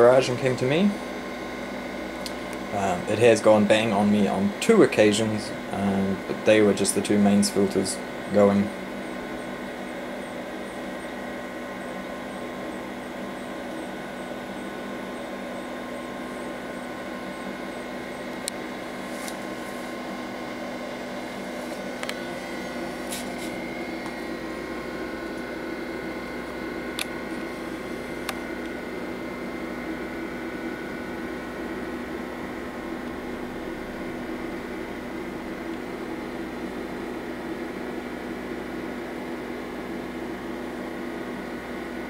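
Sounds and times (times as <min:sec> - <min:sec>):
computer fan hum and whine: 0:00.0 - 0:42.0.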